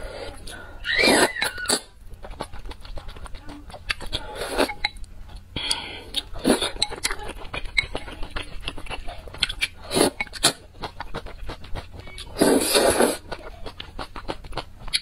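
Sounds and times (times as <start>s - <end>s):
slurping noodles: 0.1s - 3.0s, 4.0s - 4.9s, 5.8s - 9.0s, 9.6s - 13.3s
wet chewing: 0.8s - 15.0s.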